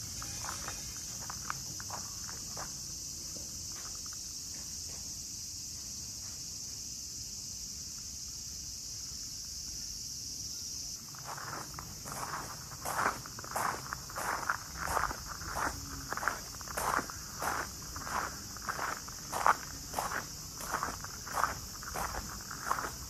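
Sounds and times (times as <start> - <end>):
footsteps on gravel: 0.0 - 4.7, 11.1 - 23.0
cicadas chorus: 0.0 - 23.0.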